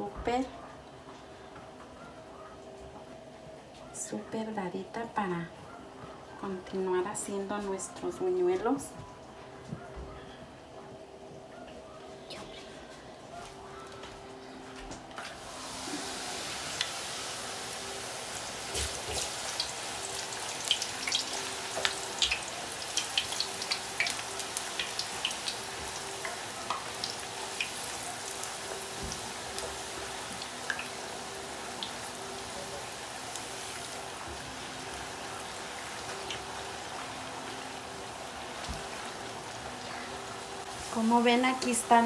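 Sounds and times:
hot oil sizzling and popping: 0:15.2 - 0:42.0.

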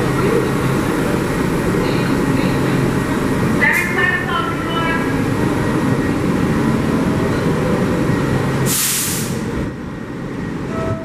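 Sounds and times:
train equipment rumbling: 0:00.0 - 0:11.0
air brake hiss: 0:08.7 - 0:09.5.

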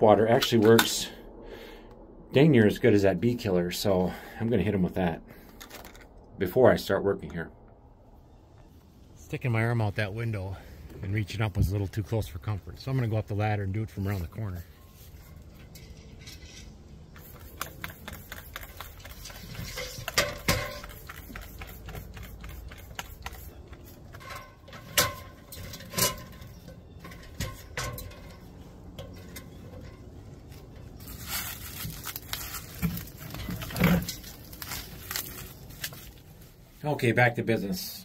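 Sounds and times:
spray bottle squirting: 0:17.2 - 0:24.0.

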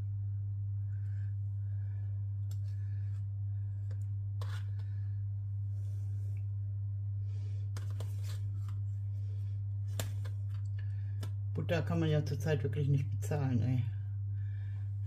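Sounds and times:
low electrical hum: 0:00.0 - 0:15.0
knife scraping margarine into bowl: 0:04.4 - 0:04.8.

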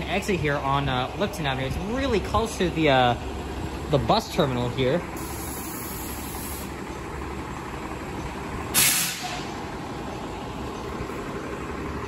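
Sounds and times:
bus engine rumble: 0:00.0 - 0:12.0
tyres on wet pavement: 0:00.0 - 0:12.0
bus air brakes hissing: 0:05.1 - 0:06.8, 0:08.7 - 0:09.7.

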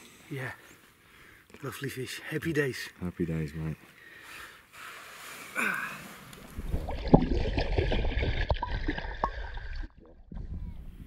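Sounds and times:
water gurgling and sloshing: 0:06.3 - 0:11.0.

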